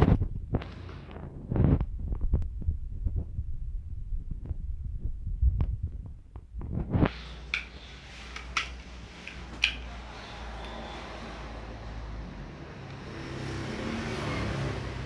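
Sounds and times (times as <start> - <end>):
plastic blocks clicking: 8.4 - 9.8.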